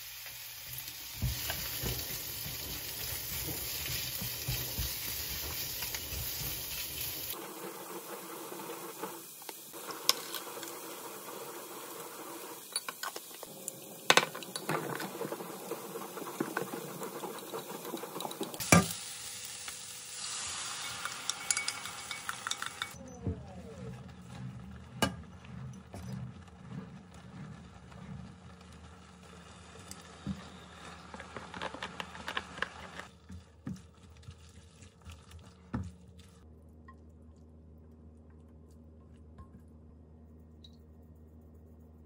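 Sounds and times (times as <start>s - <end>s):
onions sizzling in a wok: 0.0s - 23.0s, 28.5s - 33.1s
sauce sizzling in a wok: 0.0s - 23.0s
spatula stirring in a wok: 0.7s - 18.8s, 21.0s - 36.4s
chopsticks clinking in glass bowl: 20.9s - 23.0s.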